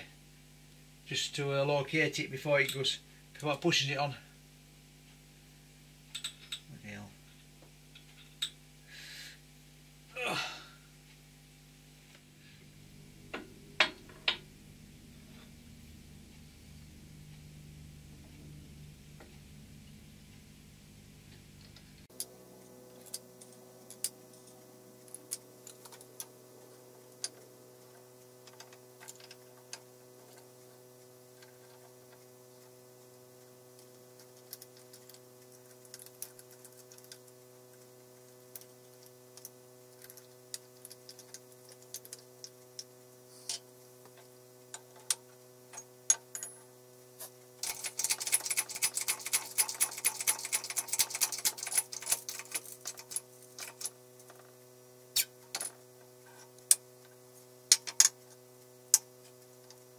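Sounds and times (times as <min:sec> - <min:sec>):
steady low hum: 0:00.0 - 0:59.9
rapid clicking: 0:47.6 - 0:53.8.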